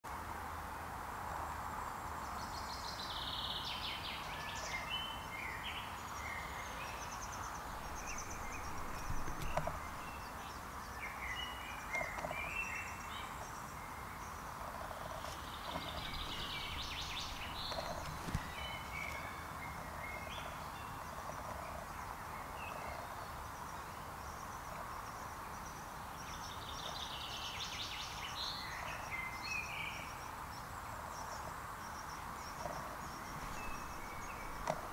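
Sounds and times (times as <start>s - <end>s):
steady background hiss: 0.1s - 34.9s
songbirds singing trills: 2.2s - 34.9s
faint ticks: 7.3s - 10.5s, 14.3s - 19.3s, 31.3s - 34.9s.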